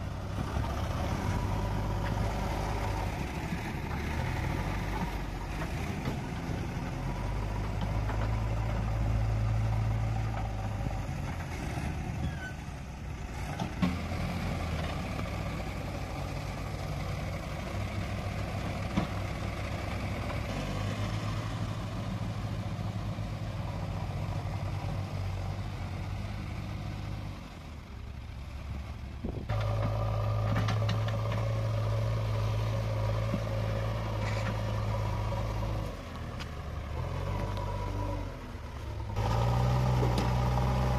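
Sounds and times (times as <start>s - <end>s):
diesel engines droning: 0.0s - 40.9s.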